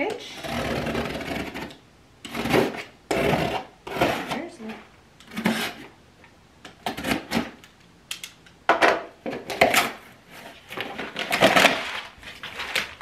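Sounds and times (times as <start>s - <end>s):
cardboard box being cut and torn: 0.4s - 4.4s, 5.3s - 5.9s, 11.2s - 12.1s.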